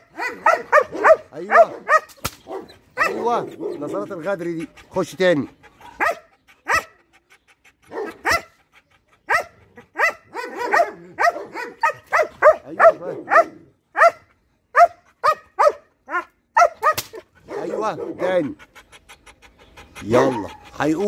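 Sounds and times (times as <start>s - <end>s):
dog barking: 0.0s - 4.0s, 5.8s - 6.9s, 7.9s - 8.5s, 9.3s - 18.5s.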